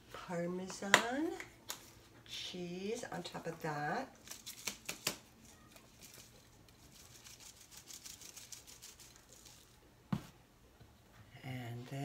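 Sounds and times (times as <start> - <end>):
grated cheese shaken from shaker: 5.5 - 9.8.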